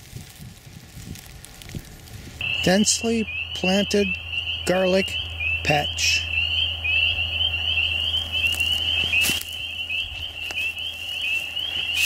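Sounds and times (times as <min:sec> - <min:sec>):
frogs calling: 0:02.4 - 0:12.0.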